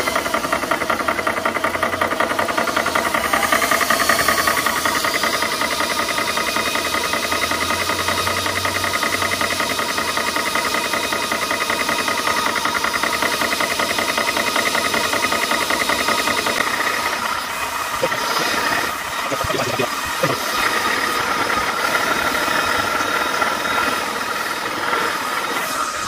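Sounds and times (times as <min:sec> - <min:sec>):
air compressor pump running: 0:00.0 - 0:26.0
cooling fan: 0:00.0 - 0:26.0.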